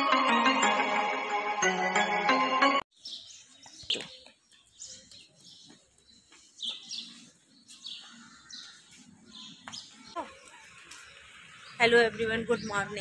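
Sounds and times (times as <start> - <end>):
birds chirping: 2.9 - 13.0.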